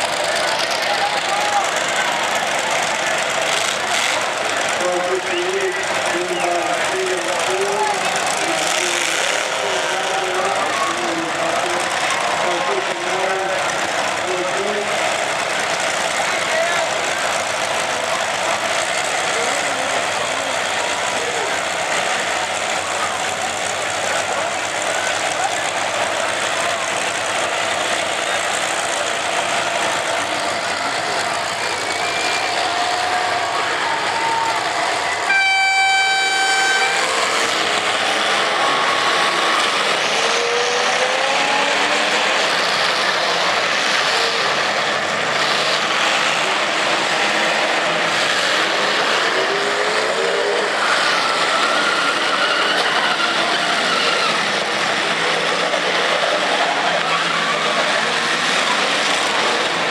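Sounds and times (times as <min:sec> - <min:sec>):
car engines revving: 0:00.0 - 0:59.9
air horn blast: 0:35.3 - 0:37.2.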